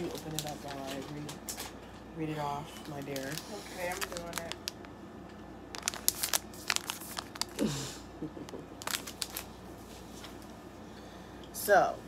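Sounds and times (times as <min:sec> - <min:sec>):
plastic wrapper crinkling and tearing: 0:00.0 - 0:01.8, 0:02.7 - 0:05.0, 0:05.7 - 0:07.7, 0:08.5 - 0:09.6.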